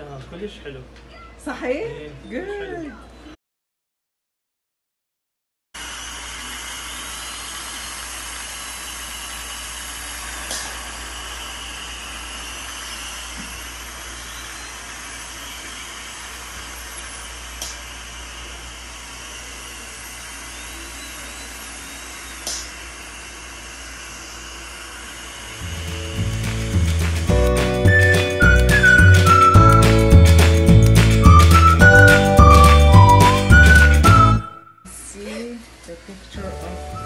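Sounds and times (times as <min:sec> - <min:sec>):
dental equipment hissing and whining: 0:05.8 - 0:27.3.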